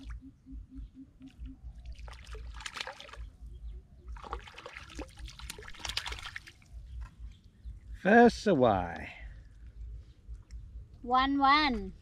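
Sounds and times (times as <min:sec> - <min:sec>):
fish thrashing and splashing: 0:01.8 - 0:03.3, 0:04.1 - 0:06.7.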